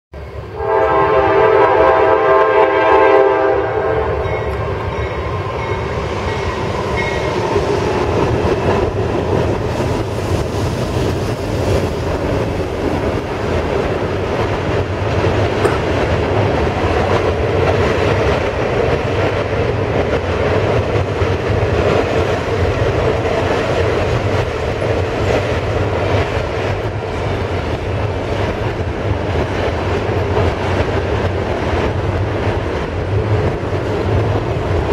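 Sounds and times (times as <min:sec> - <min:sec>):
train rumble and wheel clatter: 0:00.1 - 0:34.9
locomotive air horn: 0:00.5 - 0:04.5.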